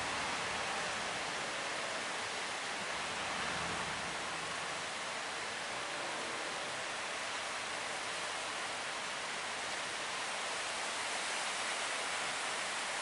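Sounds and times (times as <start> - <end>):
surf and breaking waves: 0.0 - 8.6.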